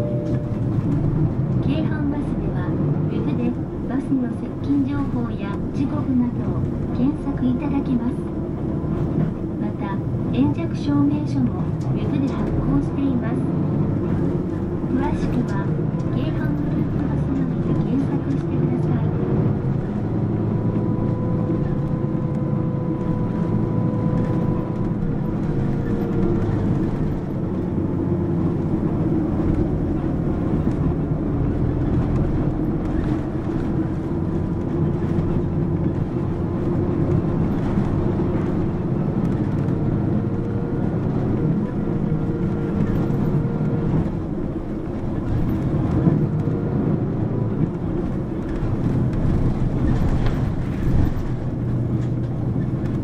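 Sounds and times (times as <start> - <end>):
faint whine: 0.0 - 8.3
bus engine drone: 0.0 - 53.0.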